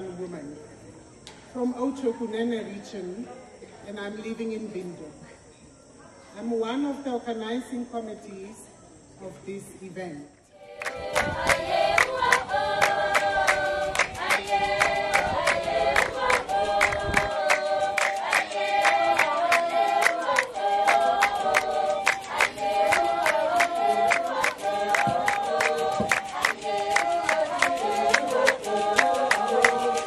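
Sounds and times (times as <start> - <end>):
women singing together: 10.5 - 30.0
fast hand clapping: 10.8 - 30.0.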